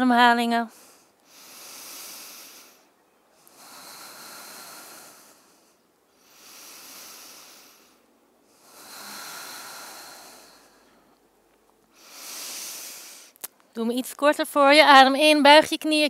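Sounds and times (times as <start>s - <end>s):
woman breathing slowly: 0.7s - 13.4s.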